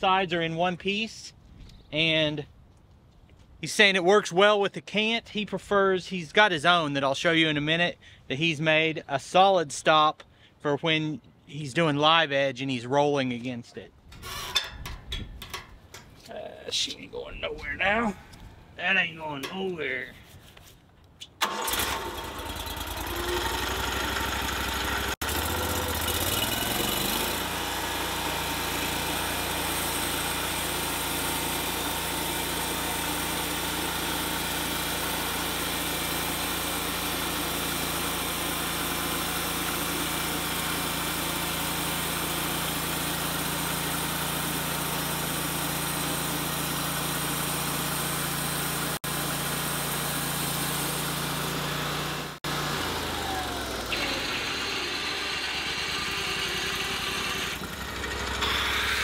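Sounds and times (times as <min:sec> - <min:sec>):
sawmill engine revving: 0:21.4 - 0:59.0.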